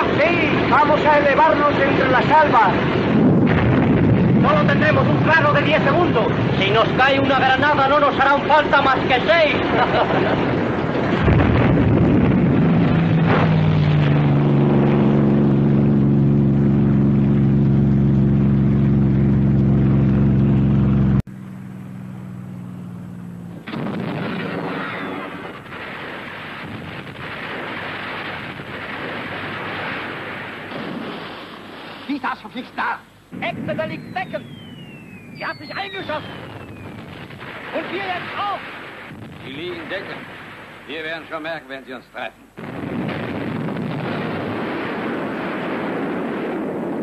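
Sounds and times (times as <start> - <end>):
quiet rumbling: 0.1 - 47.0
sharp gunshot: 11.2 - 14.1, 23.6 - 32.4, 33.4 - 41.1
loud drone of held tones: 11.2 - 25.6, 33.5 - 37.3.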